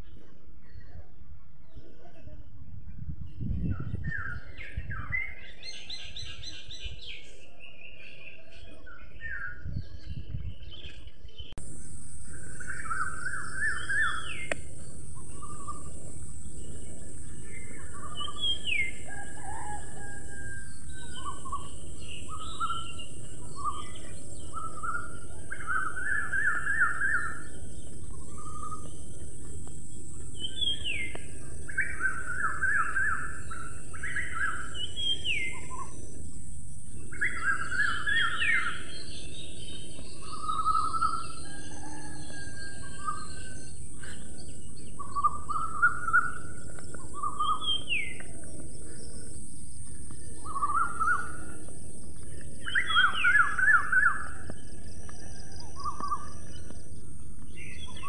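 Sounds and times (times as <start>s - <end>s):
small birds chirping: 0.0s - 58.0s
steady high hiss: 11.6s - 54.6s.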